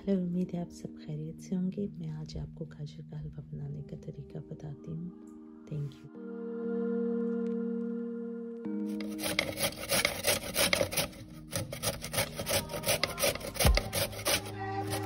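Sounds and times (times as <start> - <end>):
carrot grating on metal grater: 8.9 - 15.0.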